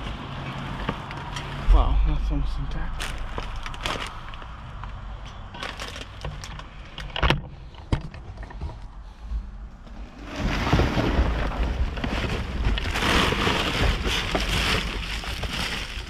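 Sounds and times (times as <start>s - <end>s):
plastic bags and bottles rustling: 2.9s - 7.7s, 9.8s - 16.0s.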